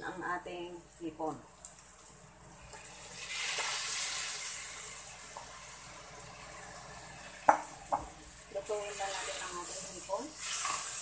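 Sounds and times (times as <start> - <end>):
shrimp sizzling in hot oil: 0.8 - 11.0.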